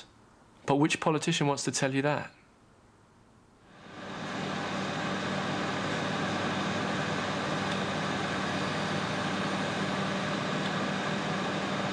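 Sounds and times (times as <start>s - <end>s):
microwave oven humming: 3.6s - 11.9s.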